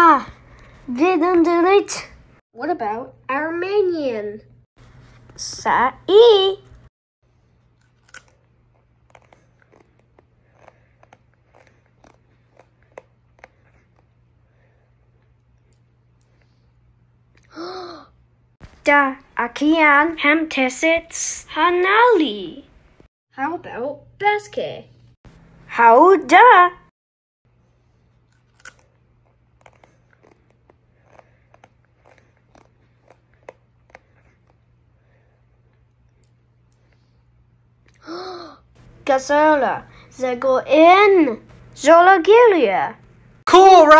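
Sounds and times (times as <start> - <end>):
chip crunching: 7.6 - 14.1, 28.2 - 34.6.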